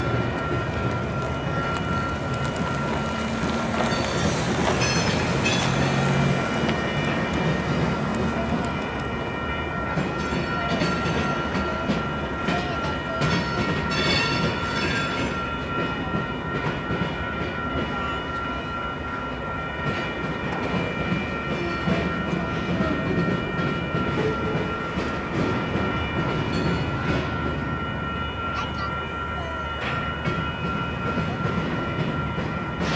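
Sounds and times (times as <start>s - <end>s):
wheels clicking over rail joints: 0.0s - 17.0s
freight train rolling past: 0.0s - 32.9s.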